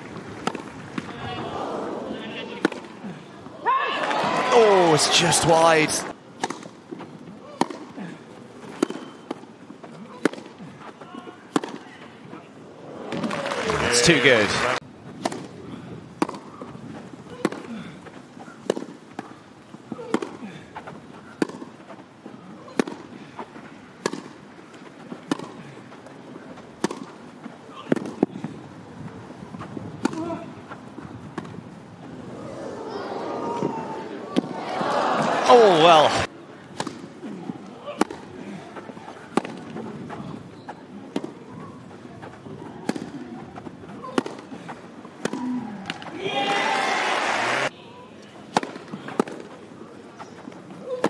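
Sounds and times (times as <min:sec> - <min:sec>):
rackets hitting tennis ball: 0:00.4 - 0:01.2, 0:02.5 - 0:02.9, 0:05.0 - 0:11.9, 0:16.2 - 0:16.7, 0:18.5 - 0:21.8, 0:24.0 - 0:25.7, 0:26.8 - 0:28.6, 0:29.6 - 0:30.5, 0:36.7 - 0:46.2, 0:48.5 - 0:51.0
tennis ball hit by rackets: 0:00.4 - 0:01.2, 0:06.4 - 0:06.8, 0:07.5 - 0:07.9, 0:08.7 - 0:09.4, 0:10.1 - 0:10.5, 0:11.5 - 0:11.8, 0:16.2 - 0:16.5, 0:18.6 - 0:19.3, 0:21.4 - 0:21.7, 0:24.0 - 0:24.4, 0:25.2 - 0:25.6, 0:26.8 - 0:27.2, 0:30.0 - 0:30.4, 0:36.7 - 0:37.1, 0:37.9 - 0:38.3, 0:39.3 - 0:40.2, 0:42.8 - 0:43.2, 0:44.0 - 0:44.5, 0:45.2 - 0:46.1, 0:48.5 - 0:49.5
crowd murmur: 0:01.0 - 0:06.1, 0:12.2 - 0:14.8, 0:32.0 - 0:50.1
crowd applause: 0:04.0 - 0:06.1, 0:12.8 - 0:14.8, 0:32.8 - 0:36.3, 0:46.2 - 0:47.7.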